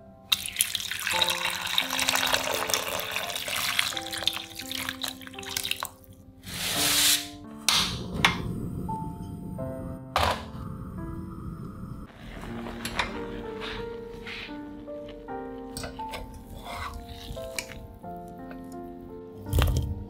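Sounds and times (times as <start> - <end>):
water pouring into a pan: 0.3 - 6.1
gas burner hiss: 6.4 - 14.6.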